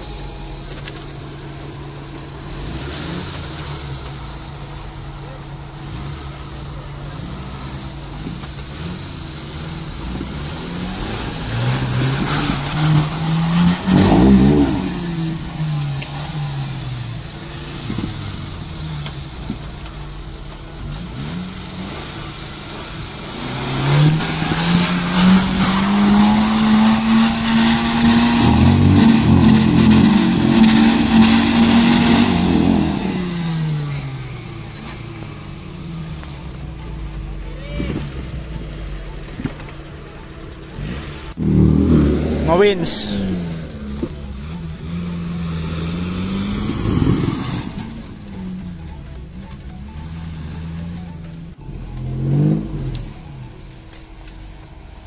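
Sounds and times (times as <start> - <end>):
engine revving hard: 0.0 - 53.8.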